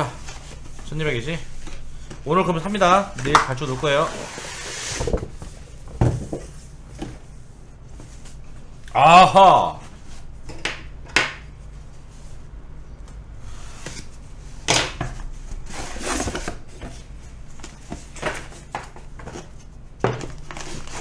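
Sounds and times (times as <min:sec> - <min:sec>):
cardboard scraping and rubbing: 0:03.9 - 0:05.6.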